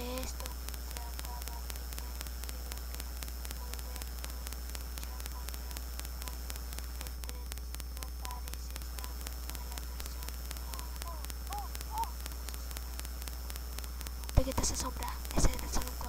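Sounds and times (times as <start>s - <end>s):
low electrical hum: 0.0s - 16.0s
static hiss: 0.0s - 16.0s.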